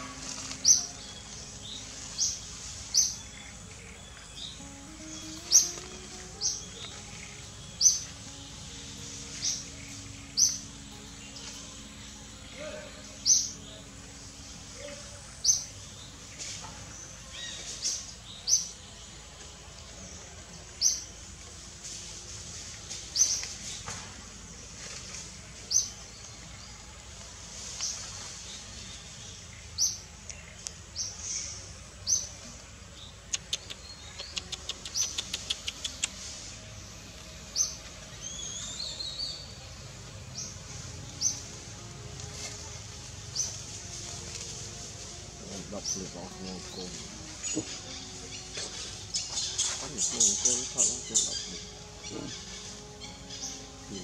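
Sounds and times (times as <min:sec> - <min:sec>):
bird ticking notes: 0:00.0 - 0:15.9, 0:33.2 - 0:36.4
birds chirping: 0:00.0 - 0:54.0.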